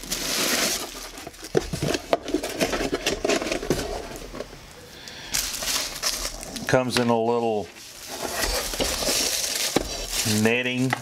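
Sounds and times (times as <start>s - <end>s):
cardboard and netting scraping: 0.0s - 4.4s, 7.8s - 10.9s.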